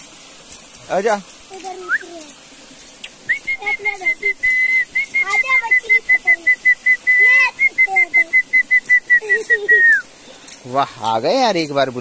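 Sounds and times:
person whistling: 0:01.8 - 0:02.1, 0:03.3 - 0:10.1.

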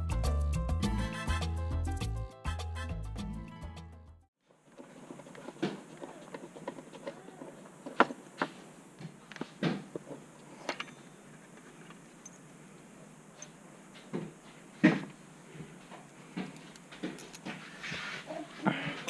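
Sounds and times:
hands handling bolts and fittings: 0:04.6 - 0:12.6, 0:15.8 - 0:17.9.

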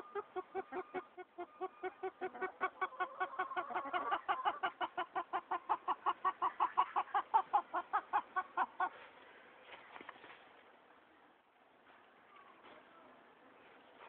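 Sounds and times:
chicken clucking rapidly: 0:00.0 - 0:09.0.

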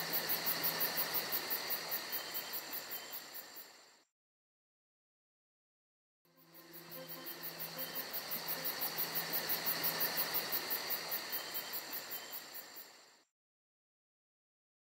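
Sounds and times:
insects chirping: 0:00.0 - 0:04.0, 0:06.3 - 0:13.2
steady hiss: 0:06.4 - 0:13.2.

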